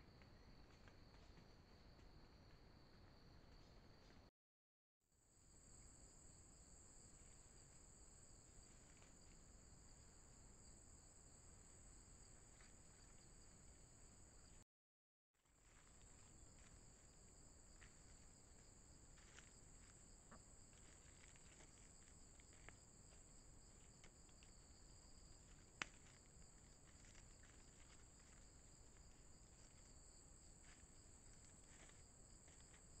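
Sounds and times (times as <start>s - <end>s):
faint ticks and rustles: 0.0s - 4.3s, 7.0s - 9.7s, 15.5s - 33.0s.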